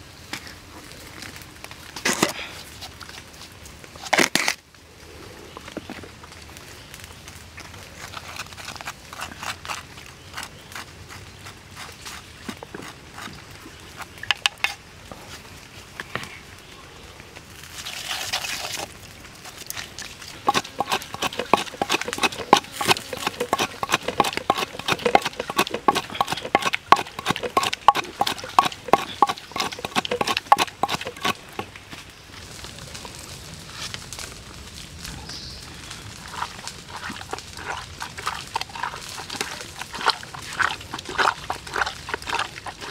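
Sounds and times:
wooden pestle pounding in mortar: 20.4s - 31.7s.

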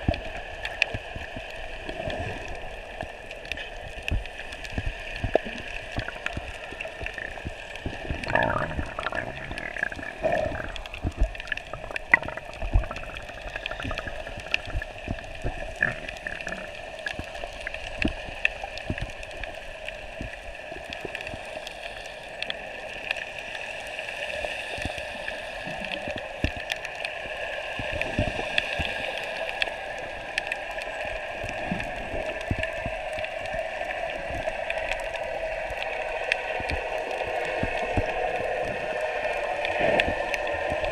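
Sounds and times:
muffled underwater wash: 0.0s - 40.9s
underwater clicks and knocks: 3.4s - 19.2s.

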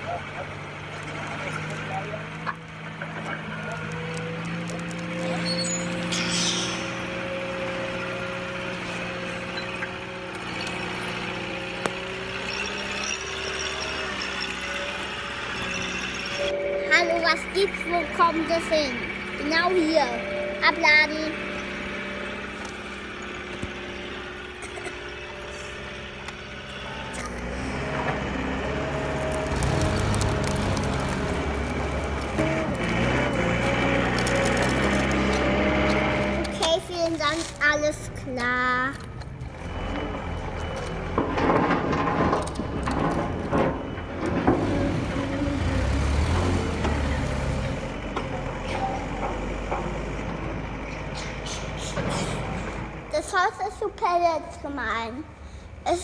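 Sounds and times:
heavy vehicle engine rumbling: 0.0s - 56.0s
toy engine-like drone: 10.4s - 27.8s.

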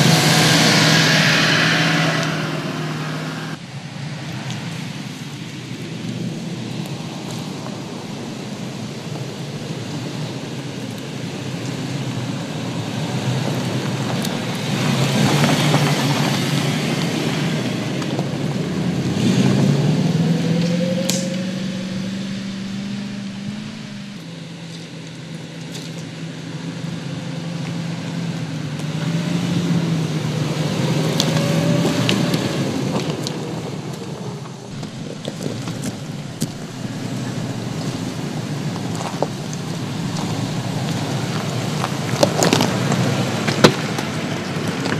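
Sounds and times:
engine pulling at low revs: 0.0s - 3.6s, 7.4s - 44.9s
tyres crunching on dirt and stone: 34.7s - 44.9s.

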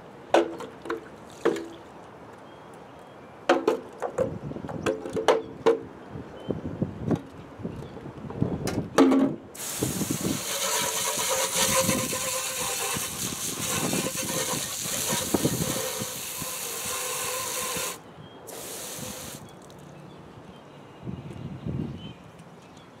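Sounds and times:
water spray hitting metal: 9.6s - 19.4s.

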